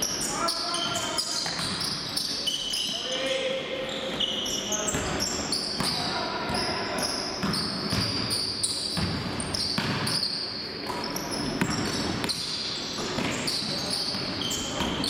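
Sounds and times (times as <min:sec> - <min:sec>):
sneakers squeaking on wood floor: 0:00.0 - 0:15.0.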